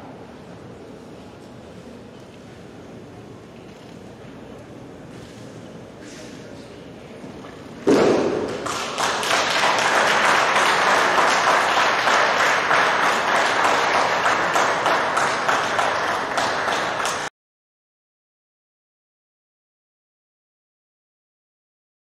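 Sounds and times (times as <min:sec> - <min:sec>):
audience applause: 0:08.4 - 0:17.3.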